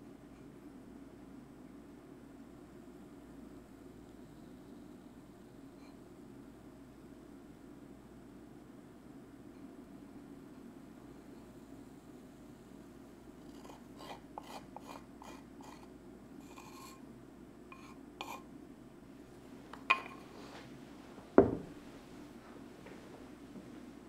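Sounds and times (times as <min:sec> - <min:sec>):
ceramic bowl knocking on wooden table: 0:21.4 - 0:21.8.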